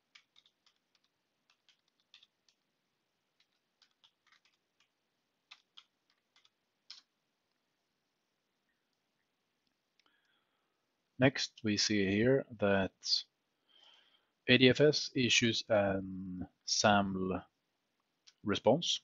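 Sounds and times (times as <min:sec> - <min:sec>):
faint keyboard typing: 0:00.0 - 0:07.8.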